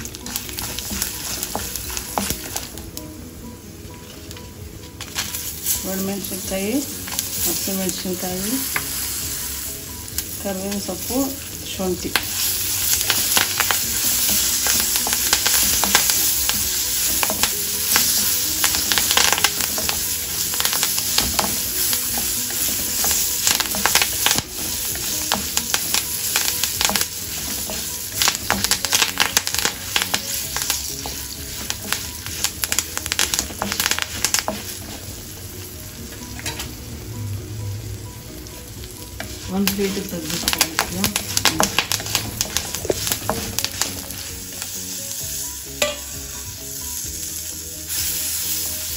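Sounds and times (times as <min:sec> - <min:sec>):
oil popping and crackling: 0:00.0 - 0:03.0, 0:10.1 - 0:36.7, 0:38.5 - 0:44.8
spices sizzling in hot oil: 0:00.0 - 0:48.9.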